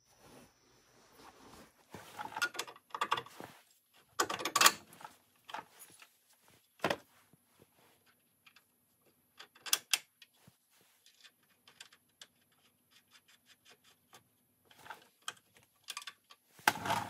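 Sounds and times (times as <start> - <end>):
metal bolt and plates clinking: 4.2 - 5.7.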